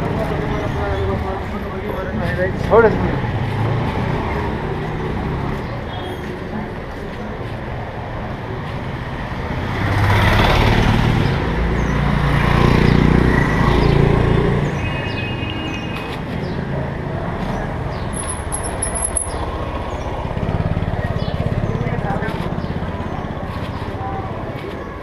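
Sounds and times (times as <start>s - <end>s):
street hum: 0.0s - 25.0s
vehicle engine passing: 9.3s - 14.8s, 16.3s - 24.8s.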